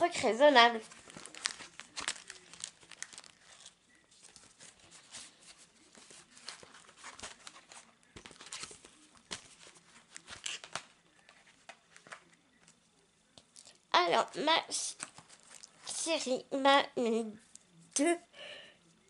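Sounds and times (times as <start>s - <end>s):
packaging crinkling: 0.8s - 5.3s.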